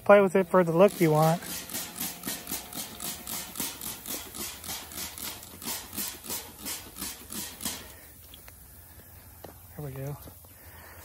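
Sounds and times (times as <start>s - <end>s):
spray bottle trigger pumping: 0.8s - 8.0s.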